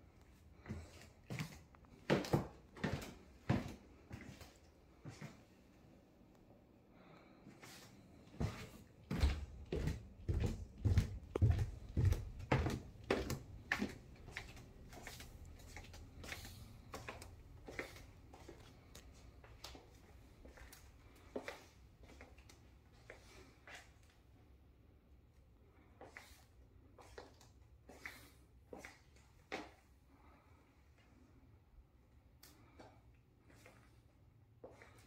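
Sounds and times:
footsteps going down stairs: 0.6 - 5.4, 8.3 - 22.5.

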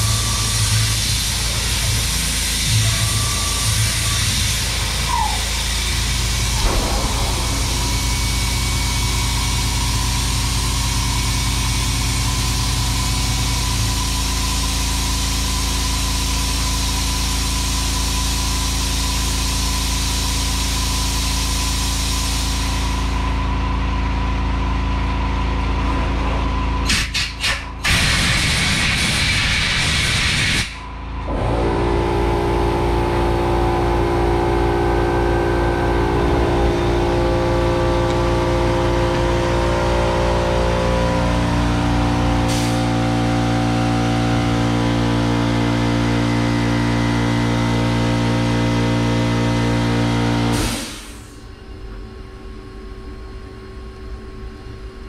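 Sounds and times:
machine hum: 0.0 - 17.2, 30.8 - 55.0
compressed air blast: 4.5 - 11.4, 42.5 - 43.0.

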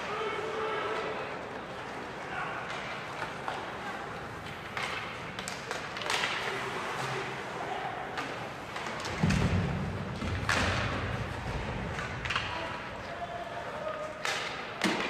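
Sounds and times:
voices in rink: 0.0 - 15.0
sharp hockey clacks: 4.4 - 6.6, 8.2 - 12.8, 14.2 - 15.0.

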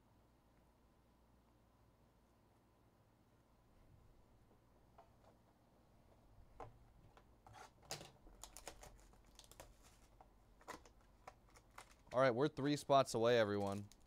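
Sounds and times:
paper and plastic wrapping crinkling: 7.9 - 14.0.

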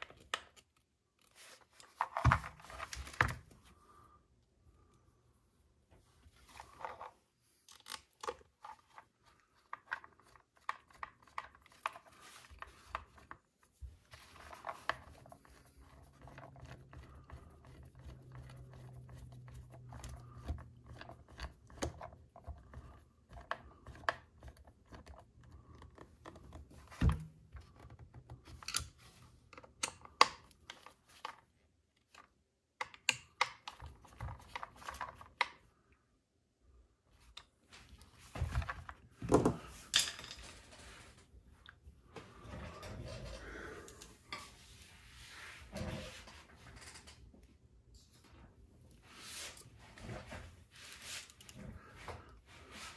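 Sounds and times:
small clicks of parts handled: 6.6 - 9.0, 27.6 - 35.6.

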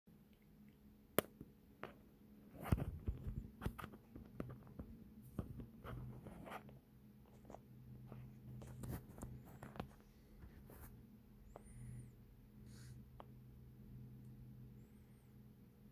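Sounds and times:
faint low hum: 0.1 - 15.9
faint rustling and scratching: 1.8 - 13.3.

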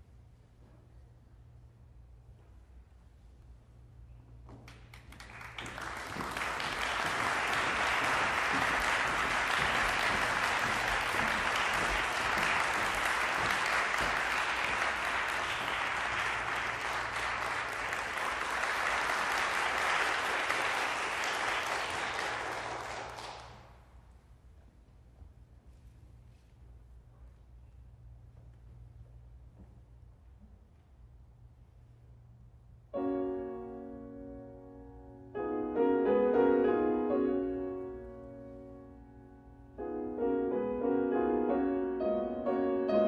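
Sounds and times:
audience applauding: 4.7 - 23.8.

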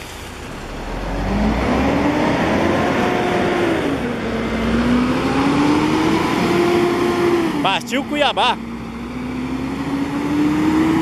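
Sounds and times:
tyres hissing on wet road: 0.0 - 9.1
diesel coach engine pulling away: 0.0 - 11.0.

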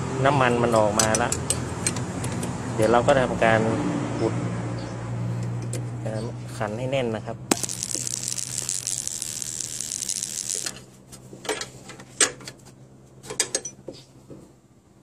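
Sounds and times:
ratchet wrench clicking: 7.5 - 10.8.

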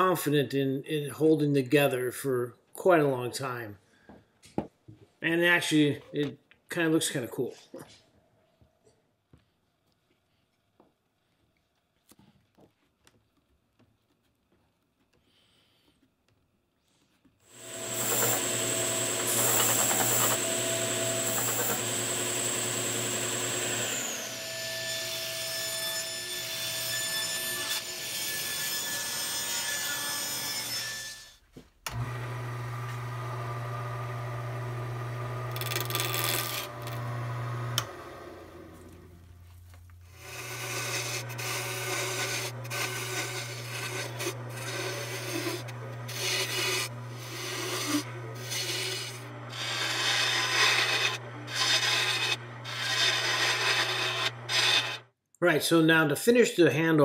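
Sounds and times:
wood lathe motor hum: 17.5 - 26.2, 31.9 - 39.4, 40.1 - 55.1
gouge cutting wood on lathe: 17.5 - 30.9, 31.9 - 39.0, 40.1 - 55.1
power tool cutting wood: 17.5 - 31.3, 31.9 - 39.2, 40.1 - 55.2.

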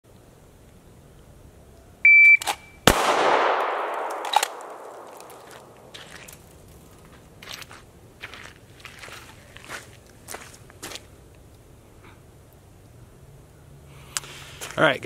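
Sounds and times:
shot timer beep: 2.1 - 2.8
handgun shot echoing: 2.8 - 5.9
footsteps: 3.9 - 11.1.

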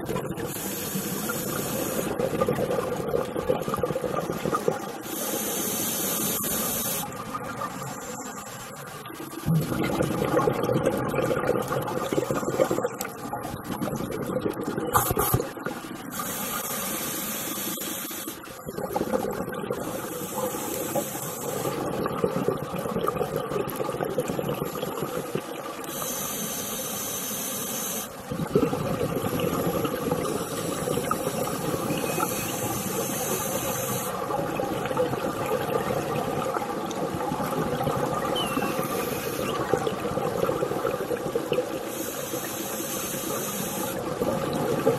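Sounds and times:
bubbling exhales: 9.4 - 16.6, 18.5 - 26.4, 28.3 - 44.9
regulator hissing inhales: 32.3 - 34.2.

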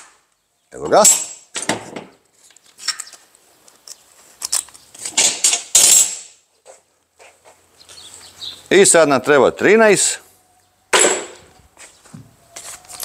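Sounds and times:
spanners and bolts clinking: 2.4 - 3.2, 3.8 - 6.4.

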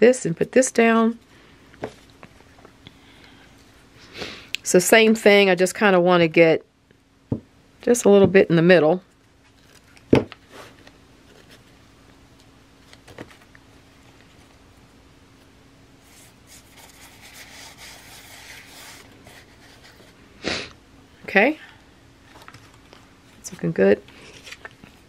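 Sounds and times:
foil paper rubbed by hand: 16.0 - 20.2.

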